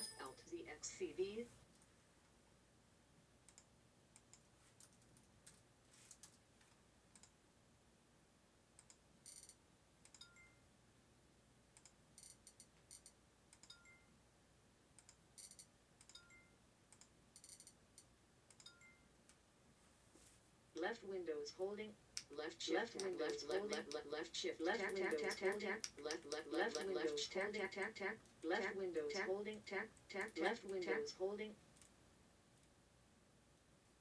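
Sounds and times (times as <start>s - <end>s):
faint two-tone beep: 10.2s - 10.6s, 13.6s - 14.1s, 15.4s - 16.6s, 18.6s - 19.1s.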